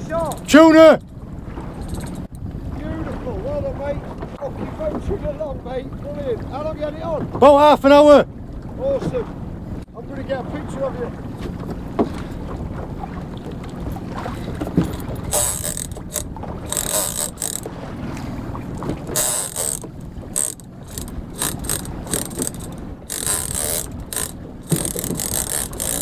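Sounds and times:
wind and water rumble: 0:00.0 - 0:26.0
fishing reel buzzing and clicking: 0:01.8 - 0:02.4, 0:14.8 - 0:17.7, 0:18.8 - 0:26.0.

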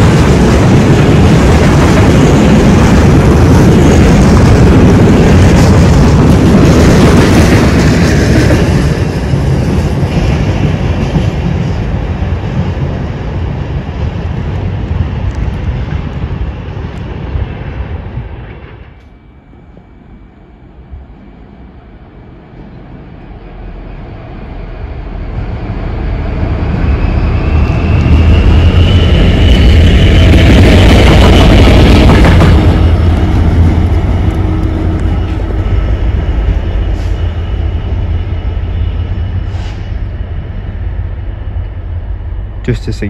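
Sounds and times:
locomotive engine drone: 0:00.0 - 0:43.0
train wheel noise: 0:00.0 - 0:43.0.

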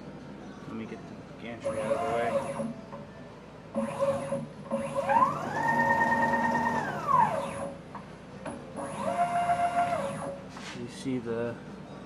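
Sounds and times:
stepper motor whine: 0:03.8 - 0:07.8.

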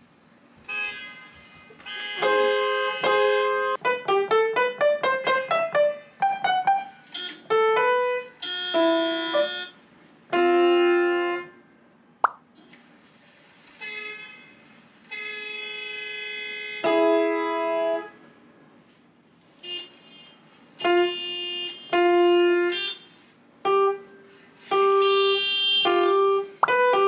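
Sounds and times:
upright piano playing: 0:02.2 - 0:09.6.

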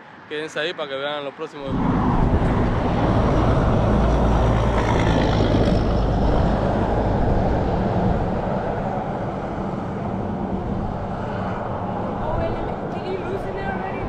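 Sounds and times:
traffic driving past: 0:00.0 - 0:14.0.

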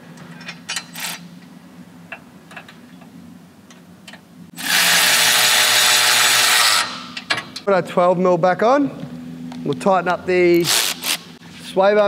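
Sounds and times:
power tool running: 0:04.6 - 0:07.1, 0:10.6 - 0:11.4.

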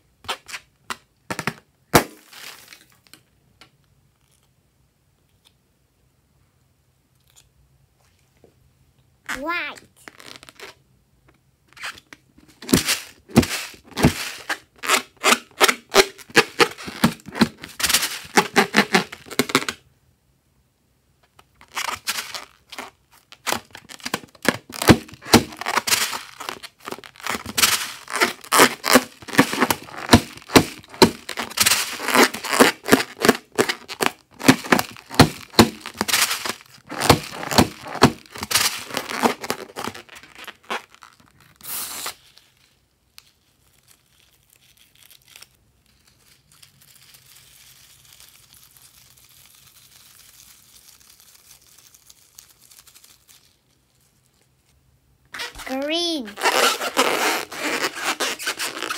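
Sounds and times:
slime crackling and popping: 0:21.6 - 0:42.1, 0:43.2 - 0:54.4.

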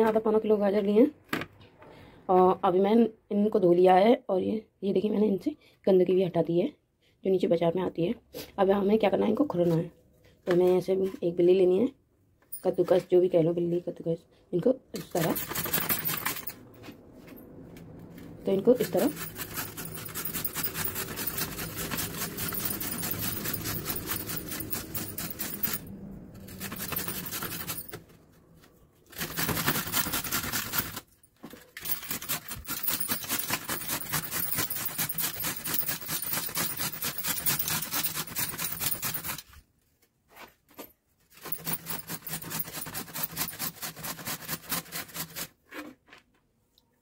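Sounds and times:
carrot rasping on metal grater: 0:18.8 - 0:25.8, 0:31.9 - 0:39.5, 0:41.4 - 0:45.6.

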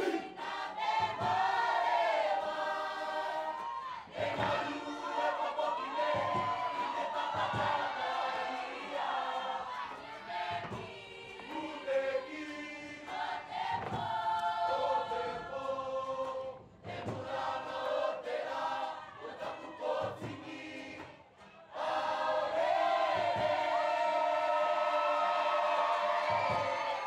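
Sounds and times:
group singing in chorus: 0:00.0 - 0:27.0.

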